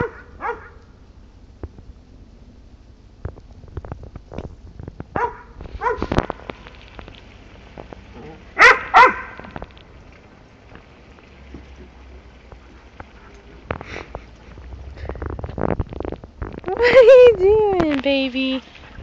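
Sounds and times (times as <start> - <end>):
dog barking: 0.0 - 0.8, 5.2 - 6.1, 8.6 - 9.4.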